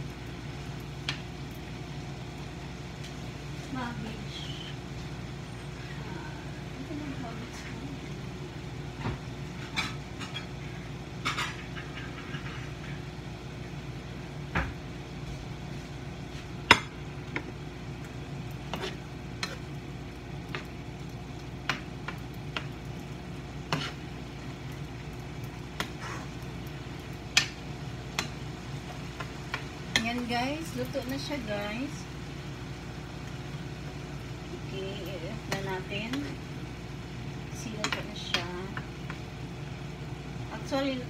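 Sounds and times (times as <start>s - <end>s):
steady low hum: 0.0s - 41.0s
utensil scraping frying pan: 11.2s - 13.1s, 18.6s - 19.8s, 23.4s - 24.2s.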